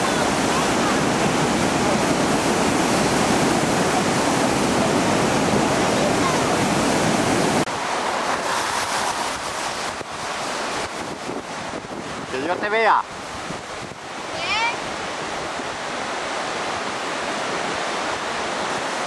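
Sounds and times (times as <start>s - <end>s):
floodwater rushing: 0.0s - 19.0s.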